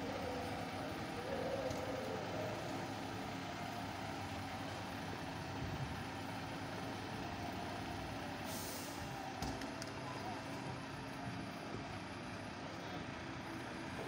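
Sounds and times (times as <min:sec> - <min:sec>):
diesel engine running: 0:00.0 - 0:14.0
air brake hiss: 0:08.4 - 0:09.2.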